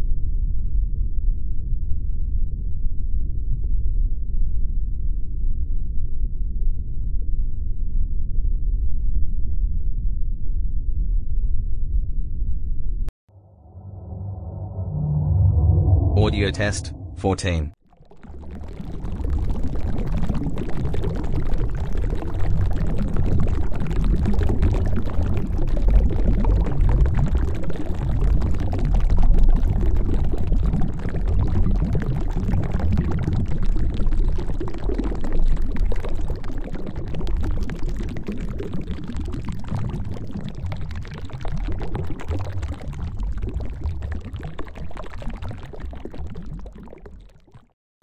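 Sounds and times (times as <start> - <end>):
underwater rush of water: 17.8 - 47.8.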